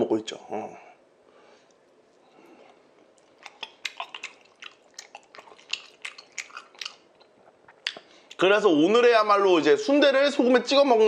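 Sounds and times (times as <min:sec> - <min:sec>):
man chewing with mouth clicks: 0:01.6 - 0:08.4.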